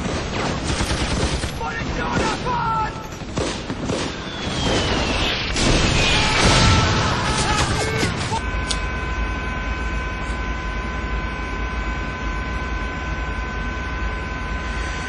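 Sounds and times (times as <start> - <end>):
gunshots: 0.0 - 8.4
booms: 0.0 - 8.5
loud blast and rumble: 0.0 - 8.6
falling whistle: 4.1 - 7.1.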